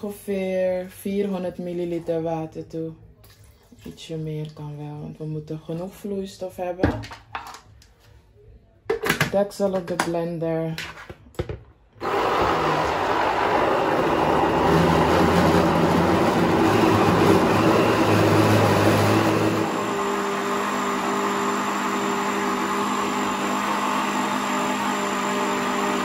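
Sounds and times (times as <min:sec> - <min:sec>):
blender motor running: 0:12.0 - 0:26.0.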